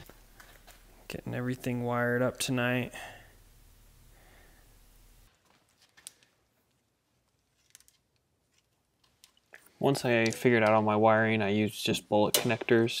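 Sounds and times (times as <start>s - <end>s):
low hum: 0.0s - 5.3s.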